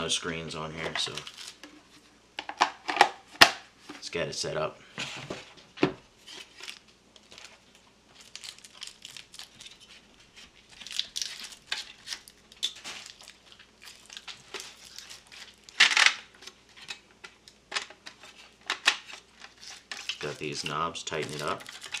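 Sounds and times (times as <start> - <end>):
plastic packaging crinkling: 0.7 - 1.8, 6.2 - 22.0.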